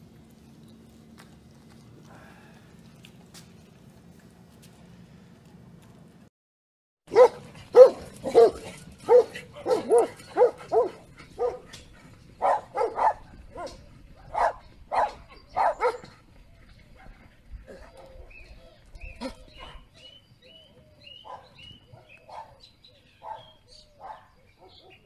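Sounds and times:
dog barking loudly: 7.1s - 11.7s, 12.4s - 16.1s.

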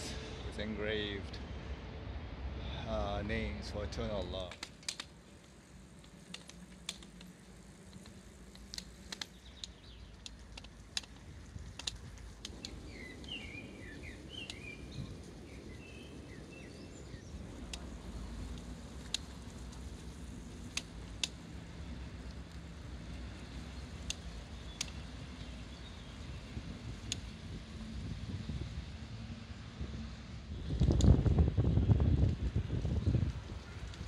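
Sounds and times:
bicycle rolling rumble: 0.0s - 34.0s
bicycle clicks and rattles: 4.0s - 29.4s, 30.4s - 34.0s
birds chirping: 6.0s - 22.1s, 22.8s - 27.4s.

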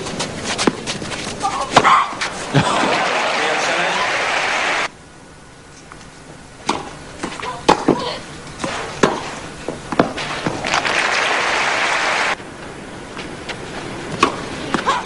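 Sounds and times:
crowd applauding: 2.6s - 4.9s, 10.6s - 12.4s
racket striking tennis ball: 6.6s - 11.0s, 14.1s - 15.0s.

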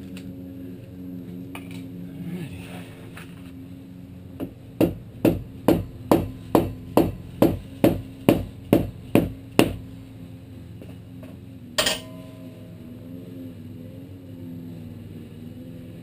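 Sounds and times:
mallet striking aluminum: 11.8s - 12.6s.

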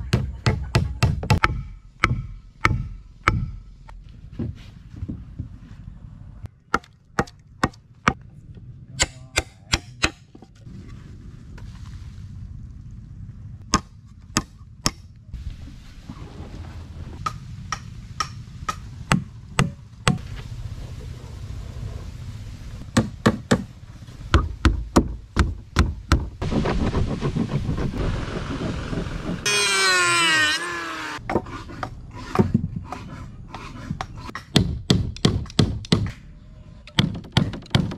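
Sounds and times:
low steady rumble: 0.0s - 37.0s
chopping wood: 37.0s - 37.9s.

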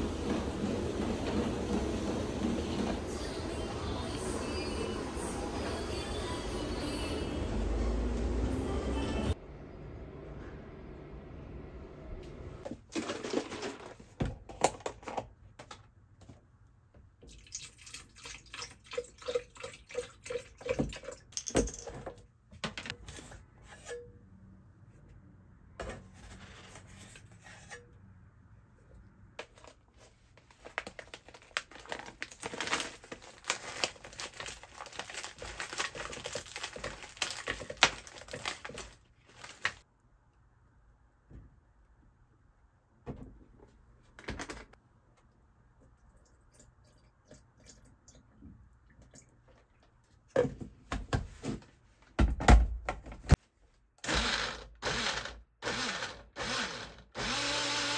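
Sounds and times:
liquid pouring into plastic jar: 17.2s - 21.5s
packaging rustling: 29.4s - 39.8s.

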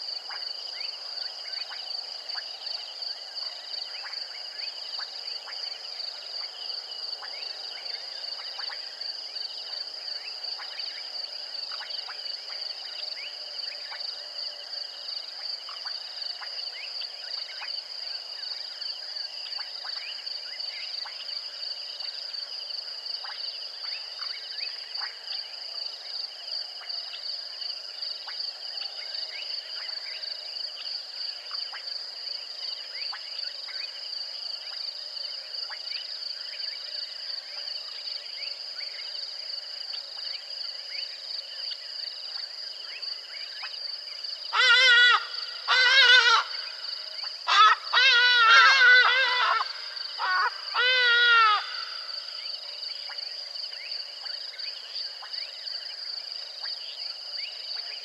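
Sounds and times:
insects trilling: 0.0s - 58.0s.

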